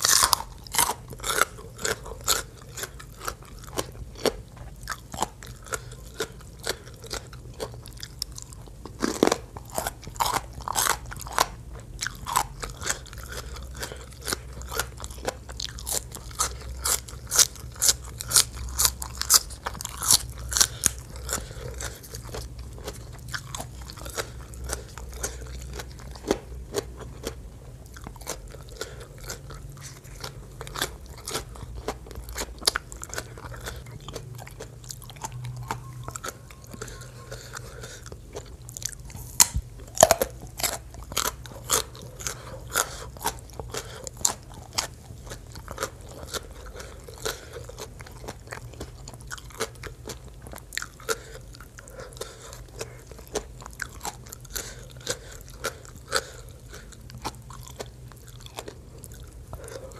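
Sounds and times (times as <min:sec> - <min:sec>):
crisp crunching bites: 0:00.0 - 0:27.3, 0:38.4 - 0:50.2
wet chewing: 0:00.0 - 0:59.9.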